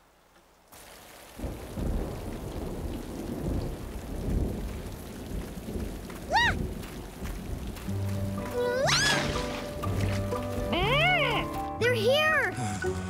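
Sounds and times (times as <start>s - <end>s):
heavy rain falling: 0.0s - 13.0s
rolling thunder rumble: 1.3s - 10.8s.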